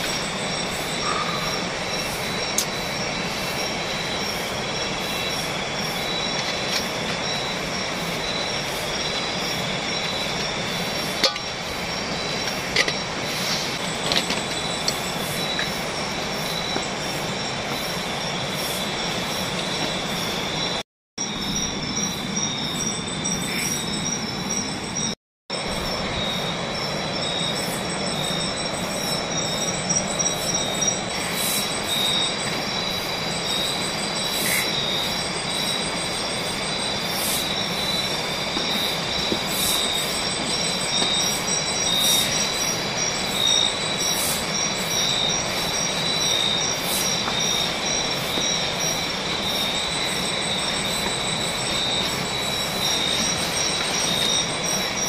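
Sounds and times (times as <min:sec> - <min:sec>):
insects trilling: 0:00.0 - 0:55.0.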